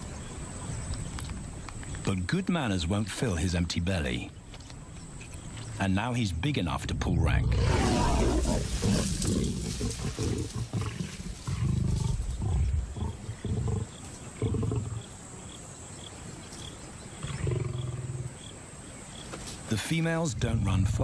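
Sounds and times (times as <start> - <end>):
lions growling and snarling: 7.3 - 15.2, 17.2 - 18.5.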